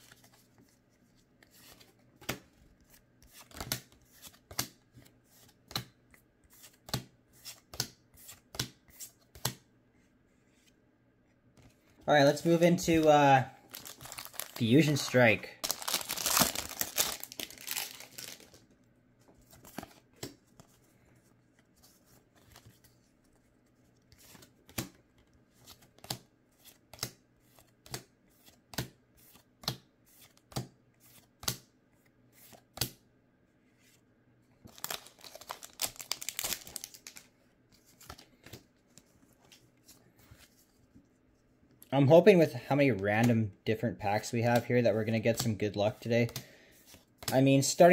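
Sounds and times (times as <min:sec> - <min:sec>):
foil wrapper crinkling: 0:13.6 - 0:18.6, 0:34.7 - 0:37.2.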